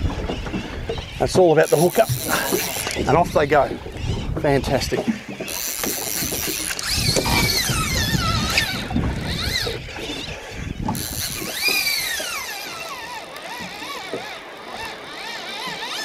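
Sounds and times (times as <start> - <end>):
fishing reel drag screaming: 1.6 - 3.5, 4.5 - 16.0.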